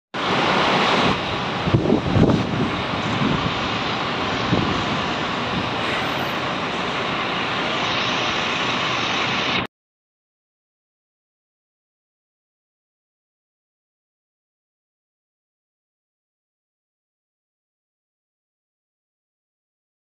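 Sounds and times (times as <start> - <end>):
city street ambience: 0.2 - 9.7
wind buffeting microphone: 0.7 - 7.6.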